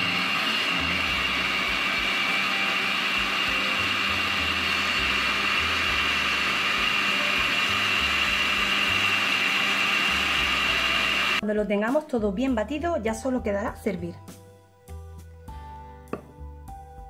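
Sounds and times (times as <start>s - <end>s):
blender whining: 0.0s - 11.4s.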